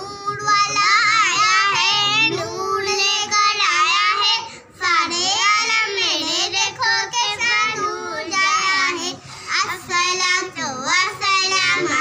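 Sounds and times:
girls singing: 0:00.0 - 0:12.0
singers breathing: 0:04.5 - 0:04.8, 0:09.2 - 0:09.7.

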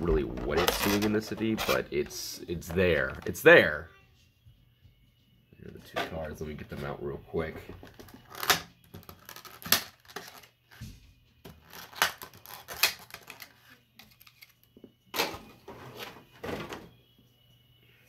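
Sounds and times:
plastic packaging crackling: 0:07.9 - 0:10.5, 0:11.6 - 0:14.5.

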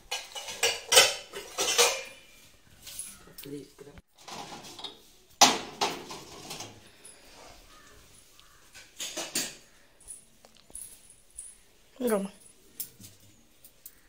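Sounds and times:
ceramic cups clattering on steel rack: 0:00.0 - 0:02.3, 0:04.2 - 0:06.8, 0:08.8 - 0:09.7.

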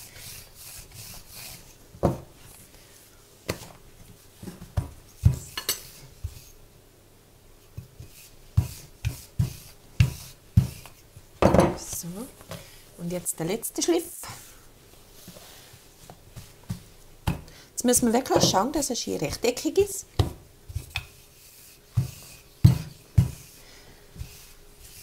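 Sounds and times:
dough rolling and rubbing: 0:00.0 - 0:06.8, 0:07.5 - 0:25.0
rolling pin knocking on worktop: 0:11.4 - 0:11.8, 0:22.0 - 0:23.4.

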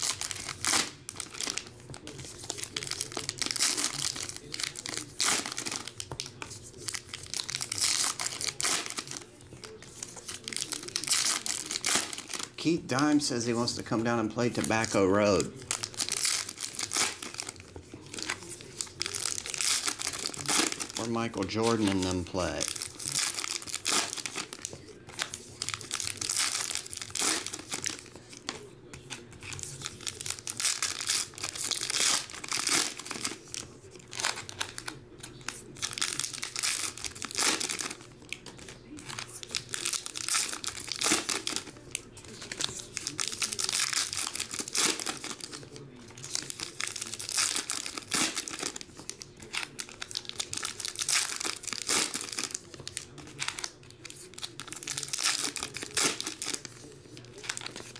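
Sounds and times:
cards being handled: 0:00.0 - 0:57.9
foil wrappers crinkling and tearing: 0:00.0 - 0:57.9.

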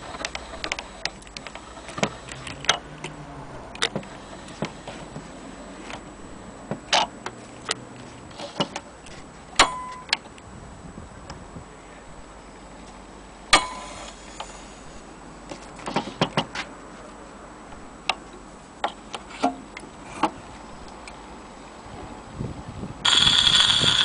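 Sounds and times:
metallic click with ringing tone: 0:09.6 - 0:10.2, 0:13.6 - 0:14.1
crank ratchet clicking: 0:23.0 - 0:24.0.

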